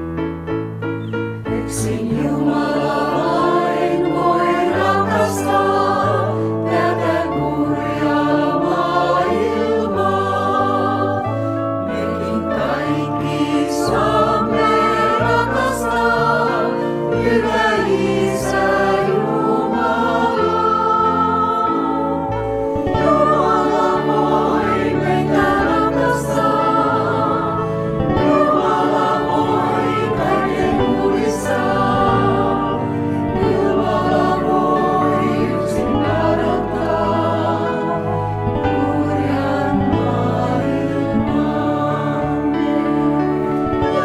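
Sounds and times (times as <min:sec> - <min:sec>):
piano: 0:00.0 - 0:44.0
mixed choir singing hymn: 0:01.5 - 0:44.0.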